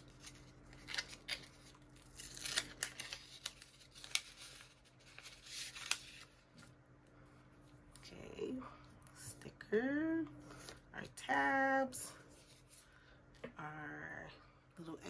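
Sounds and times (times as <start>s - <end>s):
paper envelope crackling: 0.0s - 6.5s.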